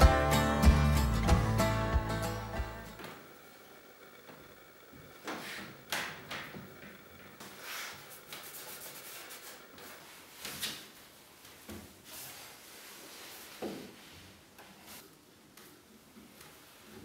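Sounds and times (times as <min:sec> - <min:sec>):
rag wiping wood: 0:07.4 - 0:10.4.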